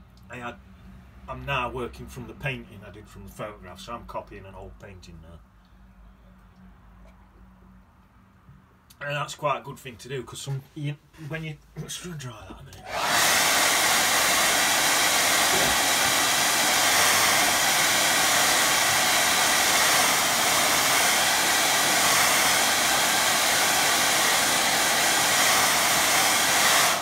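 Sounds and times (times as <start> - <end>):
hair dryer running: 12.8 - 27.0.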